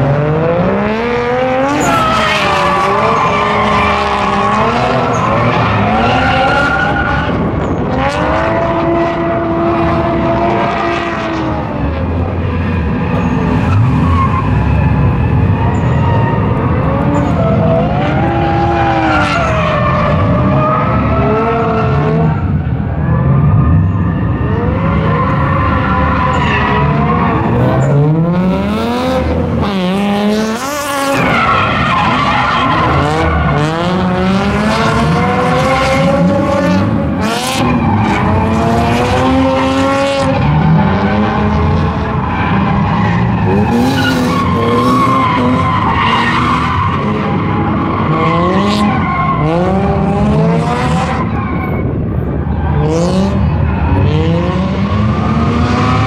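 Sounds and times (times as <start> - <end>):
car engines revving: 0.0 - 56.0
tires squealing and skidding: 0.0 - 56.0.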